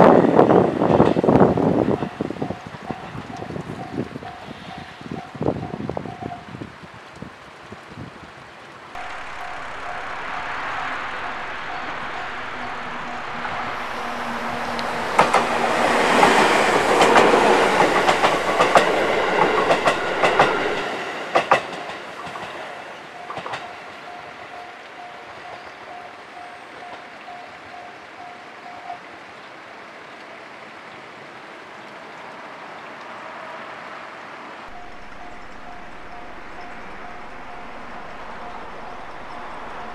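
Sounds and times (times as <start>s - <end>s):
train passing: 0.0s - 6.3s, 9.0s - 27.8s, 33.1s - 39.9s
level crossing warning bell: 1.4s - 6.4s, 9.0s - 29.0s, 34.7s - 39.9s
wheels clacking over rail joints: 13.6s - 24.3s.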